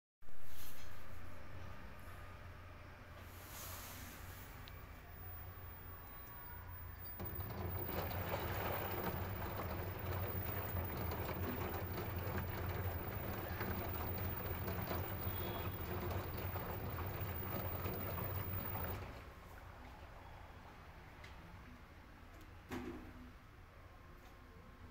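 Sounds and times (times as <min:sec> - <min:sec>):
washing machine motor running: 0:06.7 - 0:19.4.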